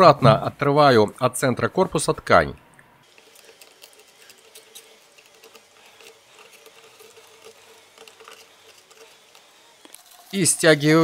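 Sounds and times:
metal pick scratching and clicking: 3.1s - 10.0s.

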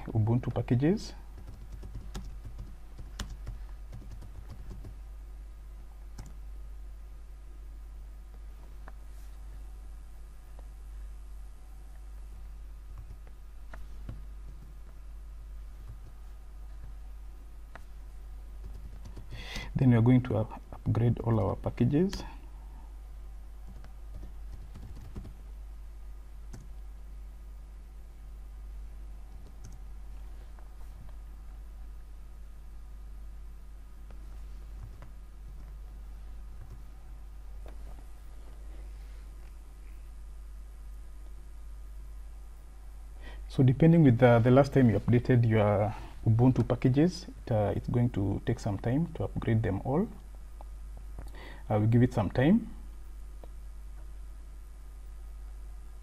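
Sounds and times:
steady low hum: 0.0s - 56.0s
keyboard keys clicking: 1.4s - 5.0s, 23.6s - 25.3s.

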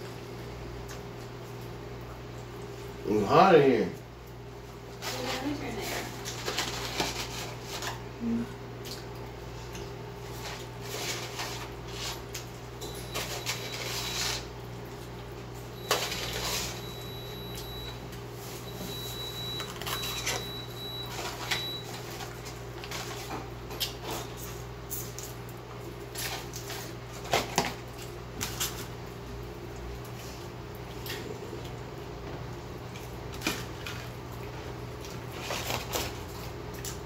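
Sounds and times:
paper wrapper crinkling: 6.2s - 8.0s
steady low hum: 7.4s - 27.2s.

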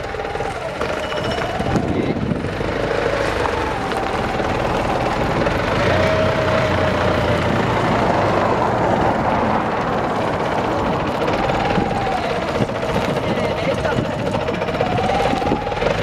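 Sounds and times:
forklift engine running: 0.0s - 16.0s
whine drifting in pitch: 0.0s - 16.0s.

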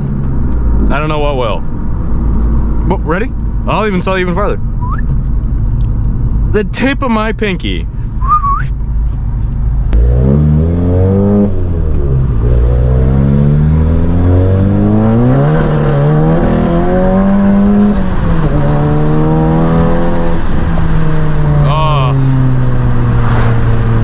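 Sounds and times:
car engine accelerating hard: 9.9s - 24.0s.

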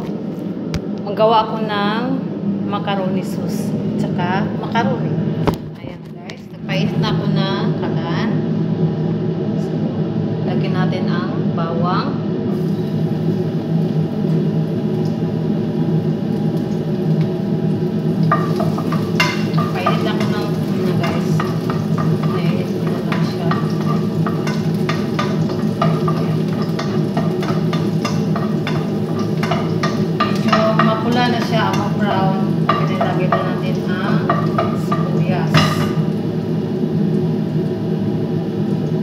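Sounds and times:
steady low hum: 0.0s - 39.0s
garlic sizzling in oil: 12.5s - 39.0s
spatula scraping pan: 18.3s - 36.1s.

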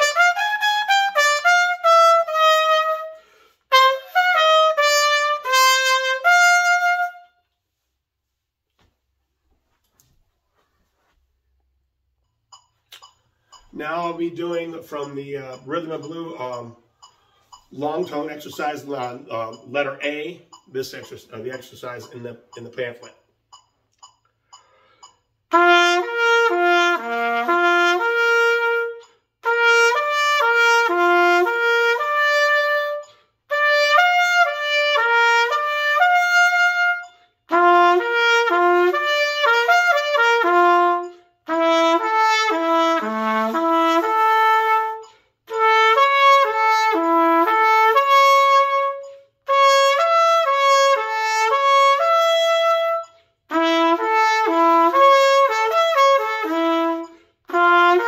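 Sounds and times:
solo trumpet playing: 0.0s - 7.6s, 25.5s - 58.0s
breath between phrases: 17.0s - 17.7s, 24.5s - 25.2s.

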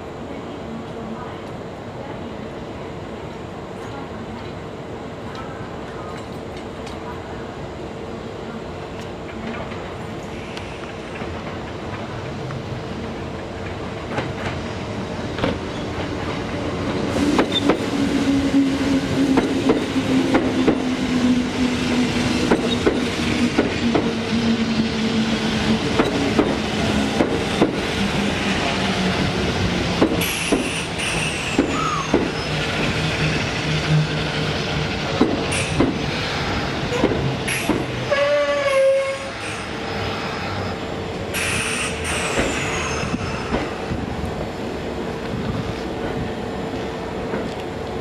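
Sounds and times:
train motor hum: 10.6s - 39.2s
train wheels clicking over rail joints: 19.0s - 20.9s, 22.0s - 24.2s, 25.6s - 28.1s, 29.9s - 36.2s, 36.9s - 38.0s, 41.3s - 44.0s.

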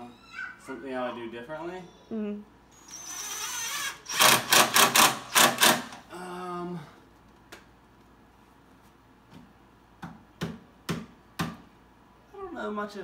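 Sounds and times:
impact driver hammering: 4.1s - 6.0s.

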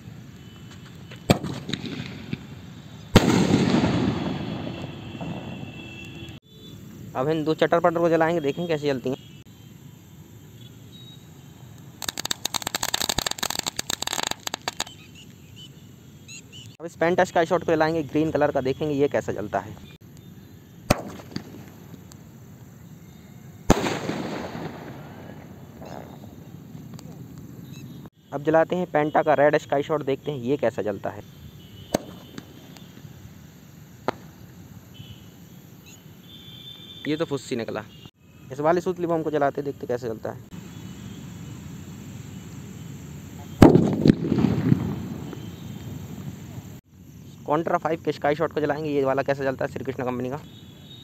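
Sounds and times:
firework launch crack: 0.2s - 6.4s, 11.8s - 15.0s, 20.9s - 22.3s, 23.7s - 27.1s, 31.9s - 33.1s, 34.0s - 34.6s, 43.4s - 46.8s
firework bursting bang: 1.2s - 6.0s, 20.9s - 22.0s, 23.7s - 26.2s, 31.9s - 32.7s, 34.0s - 34.4s, 43.6s - 46.2s
small pop: 20.9s - 21.8s, 34.0s - 34.3s.

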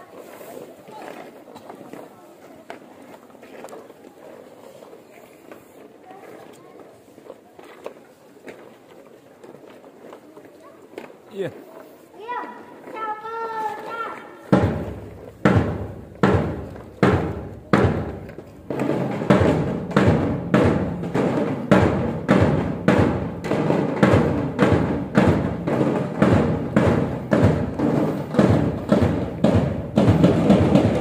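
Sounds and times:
drums beating: 14.4s - 31.0s.

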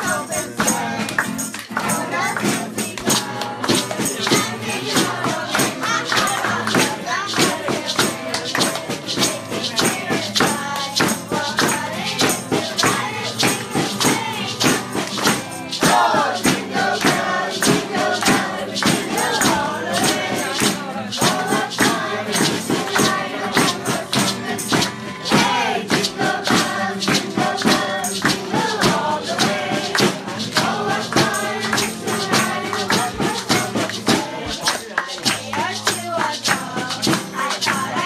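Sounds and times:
group singing a carol: 0.0s - 38.0s
hand shaker rhythm: 0.0s - 38.0s
strummed acoustic guitar: 0.0s - 38.0s.

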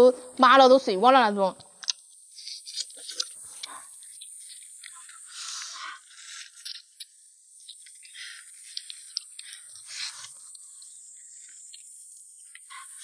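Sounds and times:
person sucking and slurping: 4.9s - 6.8s.

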